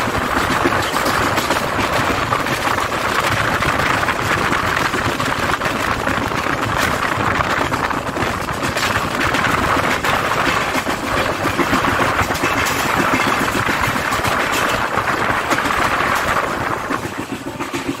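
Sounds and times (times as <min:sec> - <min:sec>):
rushing air: 0:00.0 - 0:18.0
train wheels rattling on rail: 0:00.0 - 0:18.0.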